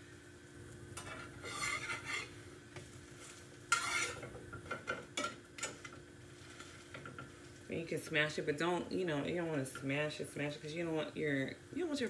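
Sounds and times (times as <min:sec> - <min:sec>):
faint sizzling: 0:00.0 - 0:12.0
metal spatula scraping frying pan: 0:01.0 - 0:02.4, 0:03.2 - 0:07.3.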